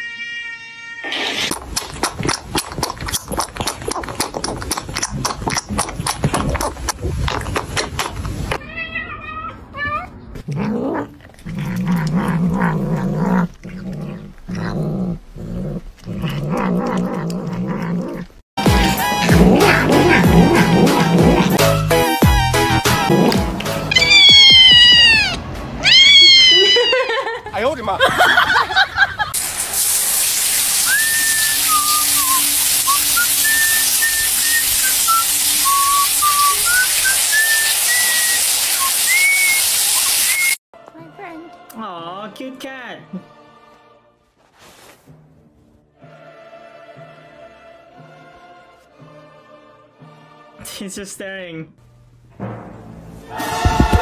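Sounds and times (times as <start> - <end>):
cat growling: 9.5 - 18.4, 19.1 - 21.6
shower spray on tiled floor: 29.4 - 40.6
person whistling a tune: 30.9 - 40.6.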